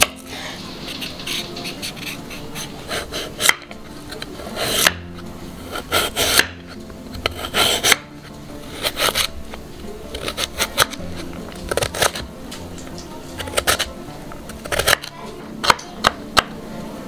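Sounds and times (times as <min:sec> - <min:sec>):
knife slicing carrot: 0:00.0 - 0:12.3, 0:13.3 - 0:16.5
blade tapping cutting board: 0:00.9 - 0:08.1, 0:13.4 - 0:13.9, 0:14.5 - 0:16.5.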